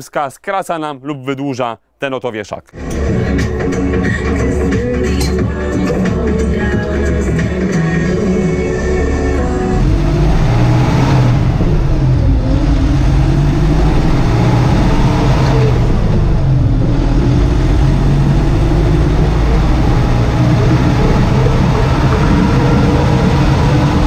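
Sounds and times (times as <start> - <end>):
tractor diesel engine running: 2.8 - 24.0.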